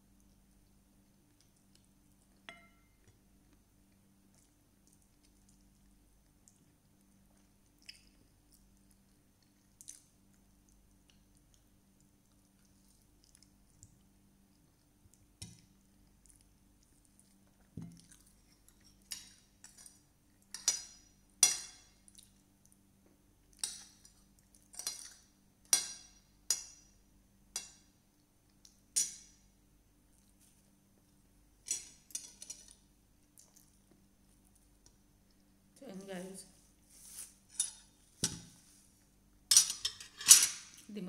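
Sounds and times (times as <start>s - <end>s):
cutlery clinking on plate: 2.5s - 2.9s.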